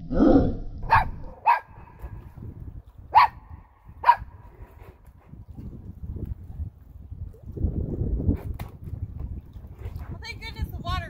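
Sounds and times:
small dog barking: 0.9s - 1.8s, 3.1s - 3.4s, 4.0s - 4.3s.

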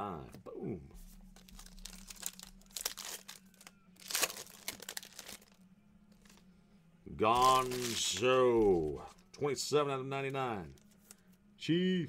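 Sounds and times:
foil wrapper crinkling and tearing: 1.3s - 5.6s, 7.3s - 8.9s.

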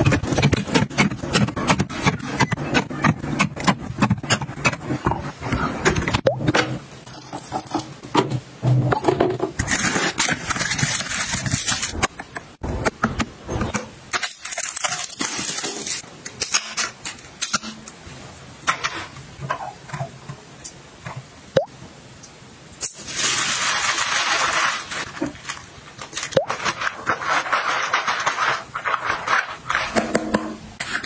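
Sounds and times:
crackly plastic wrap: 22.8s - 29.8s.

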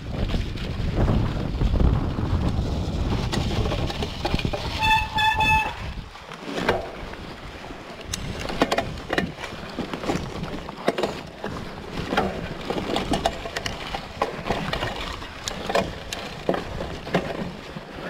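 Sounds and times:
bike tyres rolling over leaves: 0.0s - 5.7s
bike clicks and knocks: 8.0s - 17.6s.

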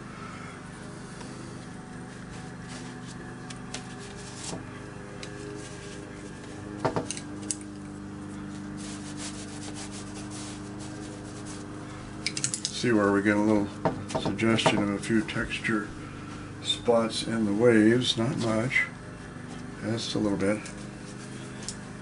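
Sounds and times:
brush scratching on paper: 3.8s - 4.6s, 5.4s - 6.3s, 8.5s - 11.8s.

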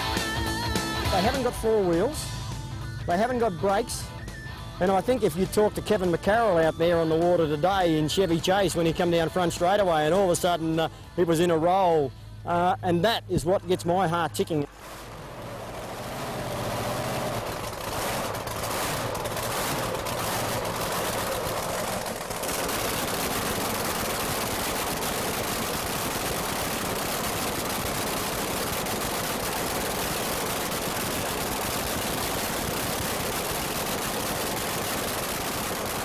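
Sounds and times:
racing boat engine crackling: 12.8s - 36.0s.

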